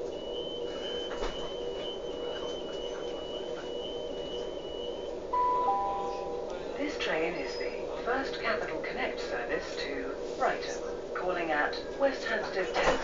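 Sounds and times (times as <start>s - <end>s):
train hum: 0.0s - 13.0s
door warning alarm tone: 0.2s - 6.5s
falling two-note chime: 5.4s - 6.5s.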